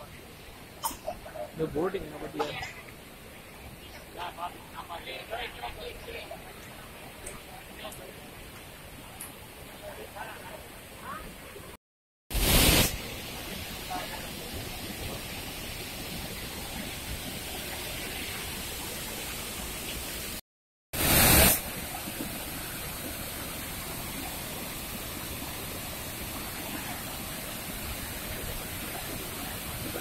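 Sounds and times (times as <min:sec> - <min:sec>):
waterfall rushing roar: 0:21.0 - 0:30.0.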